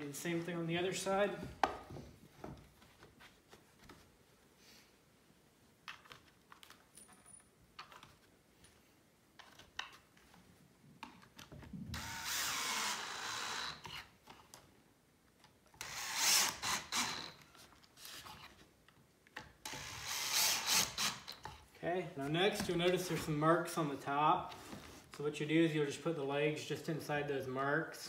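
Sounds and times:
power drill driving screws: 12.0s - 14.1s, 15.8s - 17.4s, 19.6s - 21.4s.

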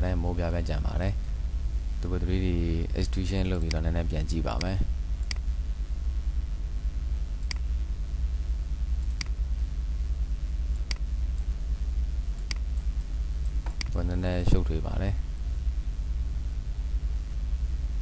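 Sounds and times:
low background hum: 0.0s - 18.0s
computer mouse clicks: 9.0s - 9.4s, 12.4s - 14.0s.

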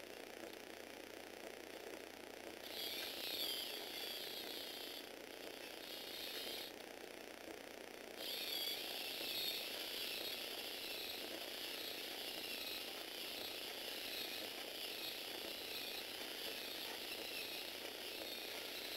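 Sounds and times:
small electric motor whining: 2.6s - 7.5s, 8.1s - 18.9s
gears rattling: 8.2s - 18.9s.

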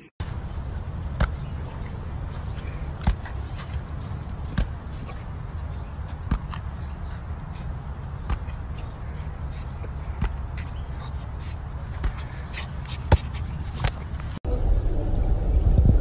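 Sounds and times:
steady low rumble: 14.1s - 16.0s.

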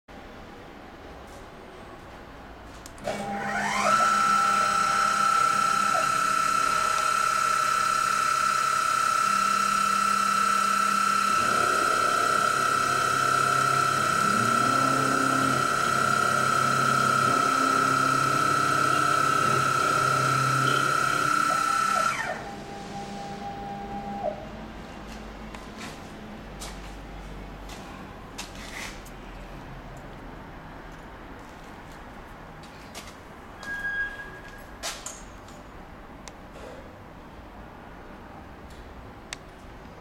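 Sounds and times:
end mill cutting metal: 3.1s - 24.4s
milling spindle whine: 3.2s - 24.6s.

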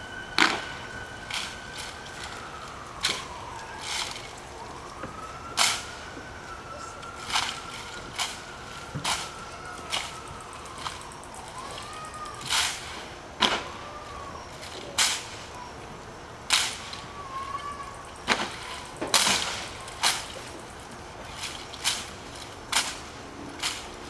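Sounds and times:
hands slapping rifles: 22.7s - 23.9s.

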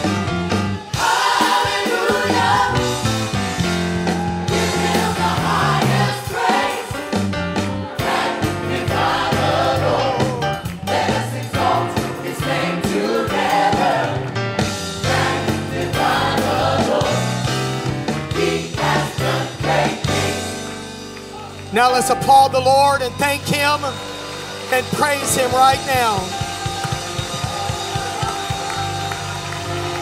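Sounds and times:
electric keyboard: 0.0s - 30.0s
group singing gospel song: 0.9s - 3.3s, 4.5s - 20.8s
bass guitar: 2.4s - 6.2s, 8.5s - 12.6s.

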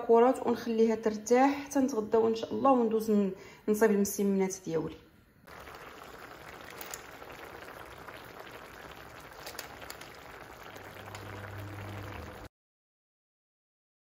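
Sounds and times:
sauce bubbling at a simmer: 5.5s - 12.5s
low hum: 9.8s - 12.5s.

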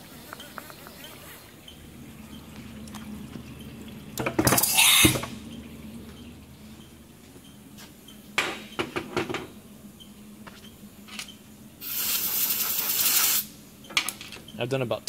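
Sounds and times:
loud steady hiss: 7.8s - 13.8s.

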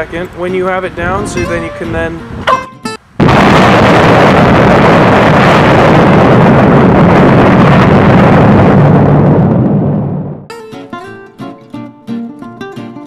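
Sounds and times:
loud explosion roar: 3.2s - 10.5s.

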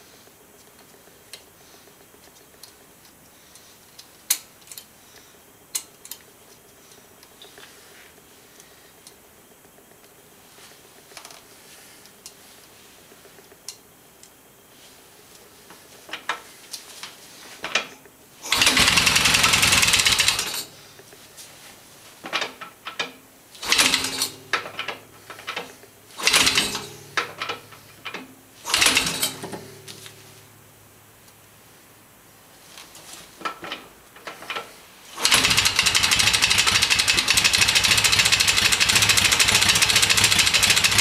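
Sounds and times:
engine starter cranking: 18.4s - 20.7s, 23.6s - 29.7s, 35.2s - 41.0s
motorcycle engine running roughly: 18.5s - 20.6s, 26.2s - 26.8s, 35.2s - 41.0s.

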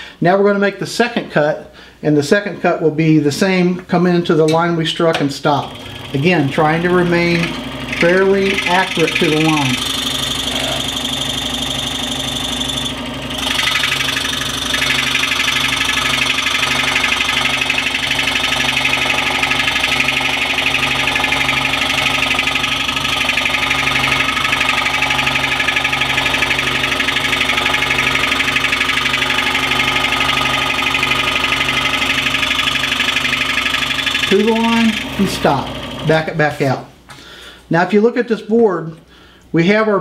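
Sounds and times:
scroll saw cutting wood: 5.5s - 36.4s.

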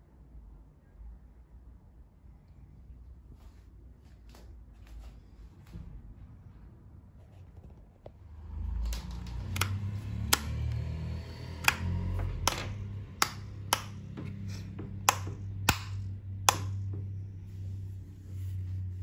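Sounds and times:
plastic helmet vent clicking: 8.9s - 10.9s.

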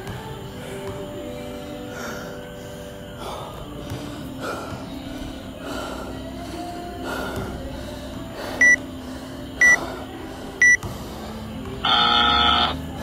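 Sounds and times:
timer buzzer tone: 11.8s - 12.8s.

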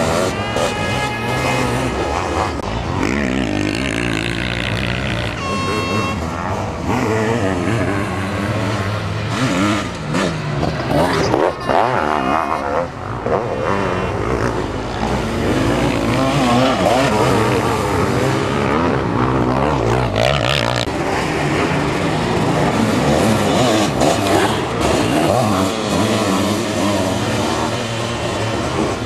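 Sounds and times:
motocross engines revving: 0.0s - 29.0s.

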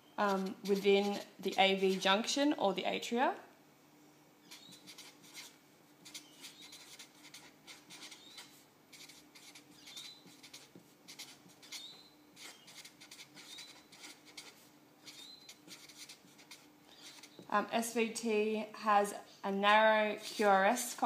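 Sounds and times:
faint steady hum: 0.0s - 21.0s
marker pen scratching on paper: 0.2s - 2.3s, 4.5s - 17.5s, 20.2s - 21.0s.

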